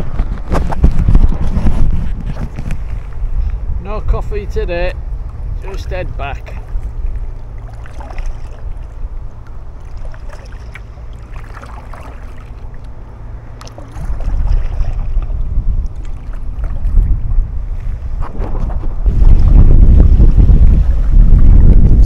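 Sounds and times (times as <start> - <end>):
wind buffeting microphone: 0.0 - 22.0
kayak paddle splashing: 6.4 - 18.4.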